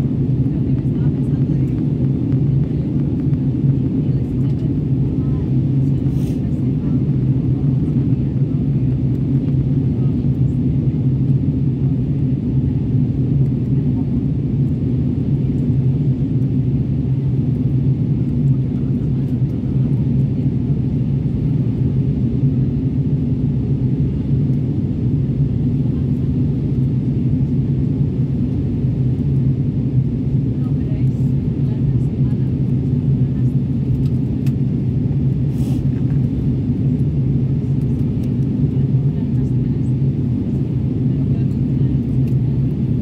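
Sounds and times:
jet engines droning: 0.0 - 43.0
rushing air: 35.4 - 36.0.

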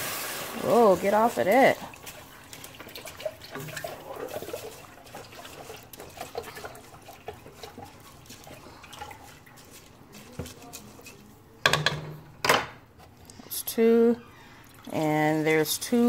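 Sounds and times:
liquid sloshing in a pot: 0.0 - 13.5, 14.1 - 16.0
spatula tapping a pot: 11.6 - 12.6.

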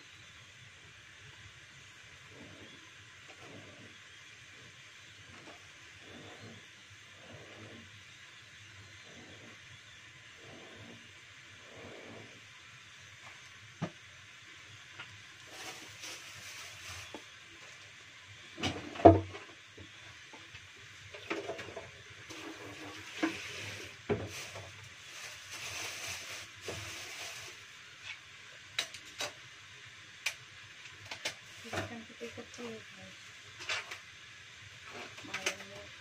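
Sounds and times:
plastic bag rustling: 15.4 - 17.4, 22.4 - 27.8.

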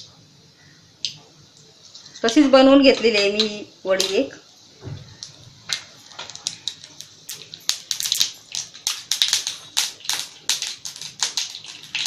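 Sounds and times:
mustard seeds popping in hot oil: 0.0 - 12.0.

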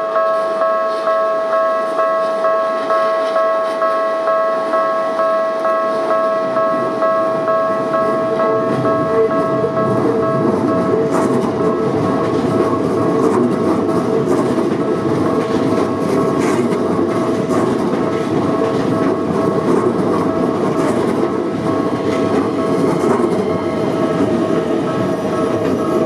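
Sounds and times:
train wheels rumbling on rails: 0.0 - 26.0
steady tone: 18.4 - 26.0.

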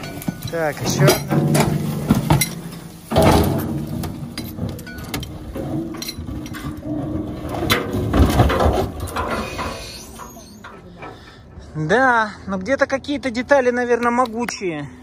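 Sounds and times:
metal clanks and knocks: 0.0 - 11.7.

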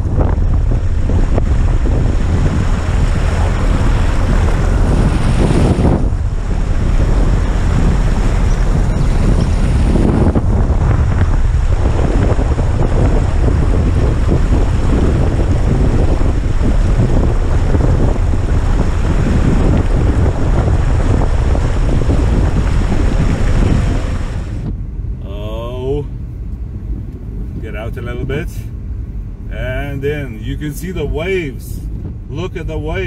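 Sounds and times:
floodwater rushing and splashing: 0.0 - 24.7
wind rumble on microphone: 0.0 - 33.0.

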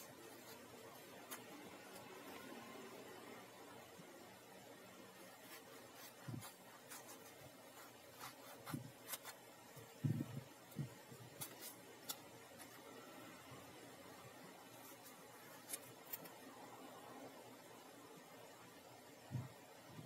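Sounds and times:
paper rustling: 5.4 - 12.8
scissors snipping paper: 10.7 - 12.8.

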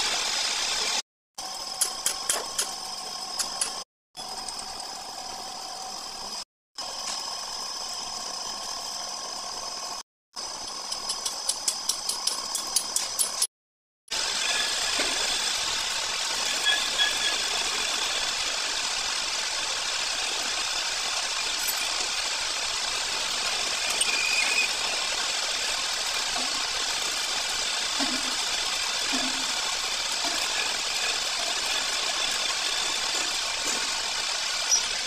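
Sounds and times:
metal lathe running: 14.1 - 35.0.

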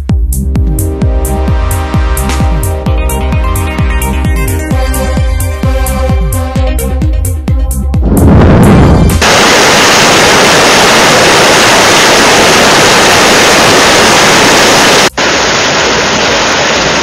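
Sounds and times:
music sting: 0.4 - 7.1, 7.7 - 10.0
floodwater rushing: 9.0 - 17.0.

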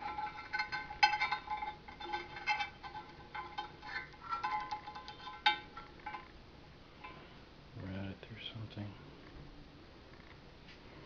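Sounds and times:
metal tubes clinking and rattling: 0.0 - 7.4.

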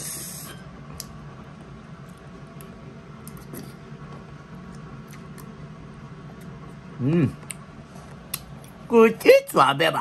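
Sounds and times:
low steady hum: 0.0 - 10.0
quiet chewing: 2.0 - 5.6.

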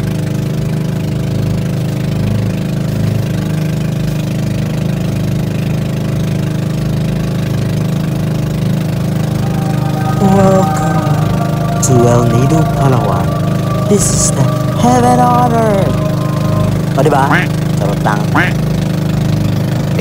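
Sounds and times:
motorboat engine humming: 6.8 - 20.0.

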